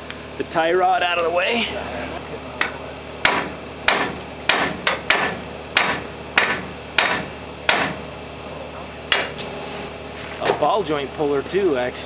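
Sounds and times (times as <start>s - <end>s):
hammer striking metal: 2.6s - 8.0s, 9.1s - 9.4s.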